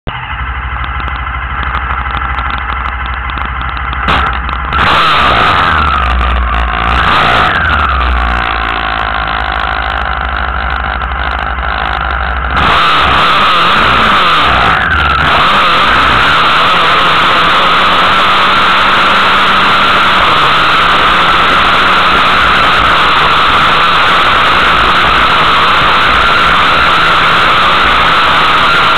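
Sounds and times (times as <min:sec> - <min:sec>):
racing buggy engines revving: 0:00.1 - 0:28.9.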